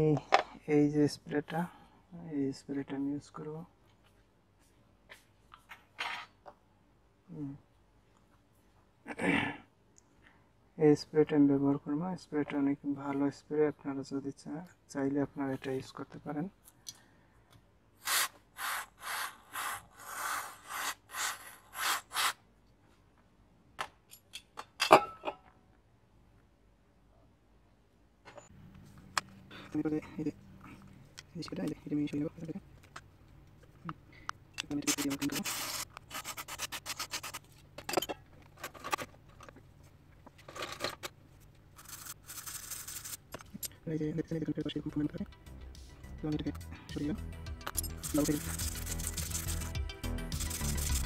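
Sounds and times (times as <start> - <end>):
rubbing and scraping handling noises: 34.6 - 43.6, 47.9 - 51.0.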